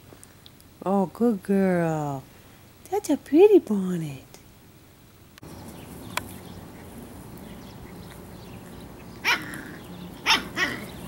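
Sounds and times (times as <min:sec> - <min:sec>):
puppy yip: 0:09.2 - 0:10.9.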